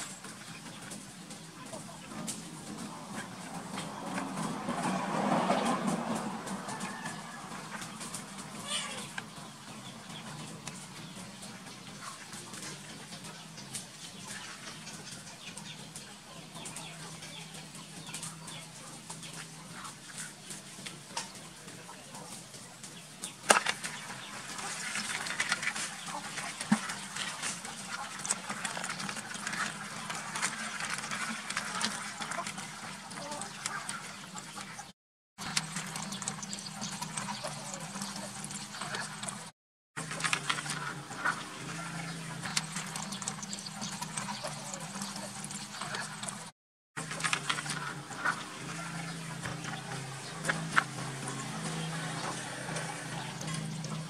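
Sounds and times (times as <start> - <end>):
chickens clucking: 0.0 - 54.0
scratchy clicking and crackling: 10.2 - 54.0.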